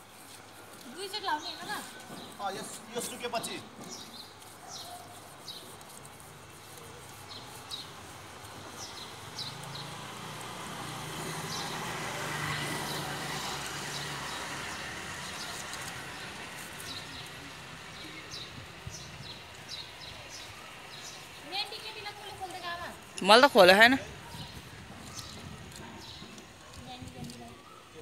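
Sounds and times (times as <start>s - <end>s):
small birds chirping: 0.0s - 28.0s
vehicle passing by: 9.2s - 18.5s.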